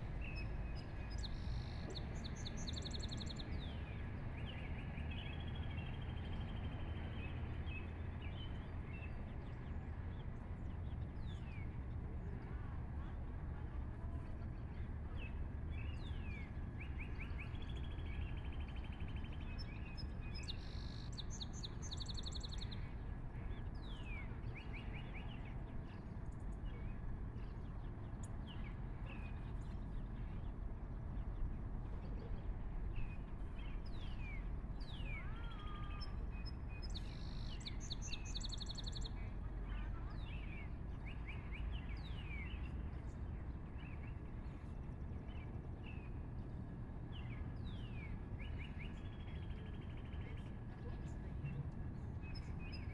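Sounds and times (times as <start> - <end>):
small birds chirping: 15.8 - 23.0, 31.1 - 44.7.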